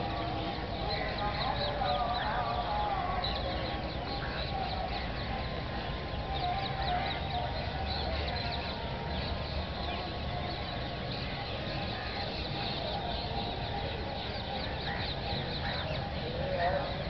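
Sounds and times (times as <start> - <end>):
many birds chirping: 0.0 - 17.0.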